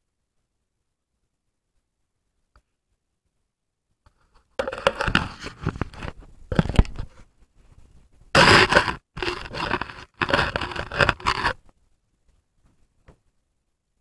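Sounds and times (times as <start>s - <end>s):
camera scraping against ice: 4.6s - 7.1s, 8.4s - 11.6s.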